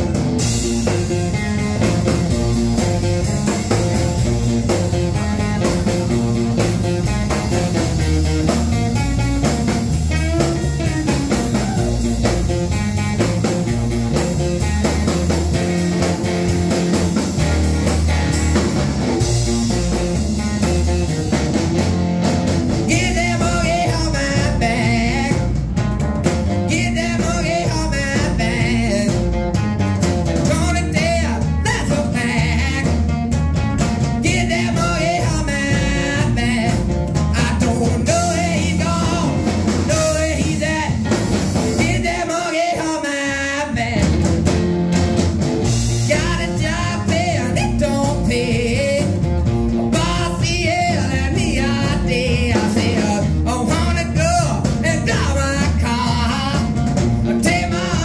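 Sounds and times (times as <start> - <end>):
drum kit: 0.0 - 58.0
electric guitar: 0.0 - 58.0
upright double bass: 0.0 - 58.0
man singing: 9.5 - 12.4, 22.8 - 25.7, 26.5 - 29.5, 30.4 - 33.3, 34.0 - 44.3, 46.0 - 58.0.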